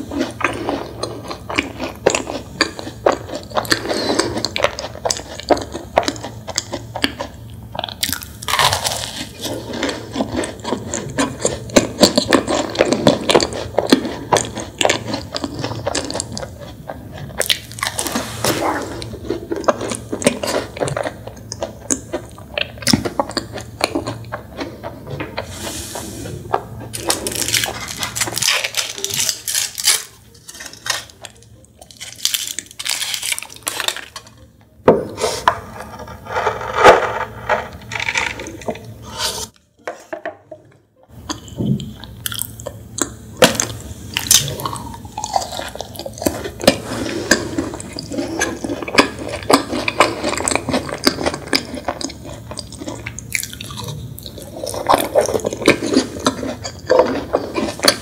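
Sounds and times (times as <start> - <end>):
biting and chewing chocolate: 0.0 - 25.5, 26.4 - 34.8, 41.1 - 58.0
foil wrapper crinkling: 26.9 - 34.4.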